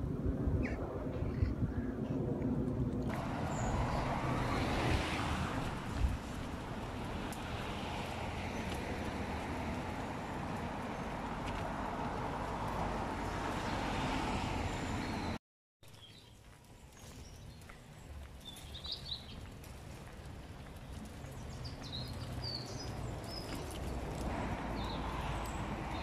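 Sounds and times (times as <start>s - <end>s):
steady rushing noise: 0.0s - 11.3s
birds chirping: 3.1s - 11.6s, 13.0s - 26.0s.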